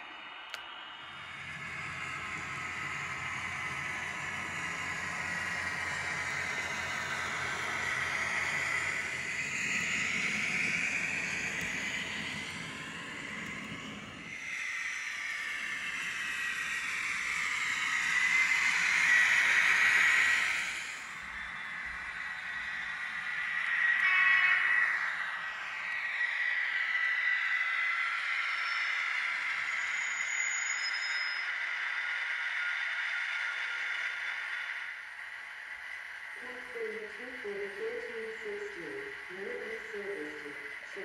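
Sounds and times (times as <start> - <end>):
model train wheel and rail noise: 0.4 - 41.0
electric motor whine: 1.3 - 14.4.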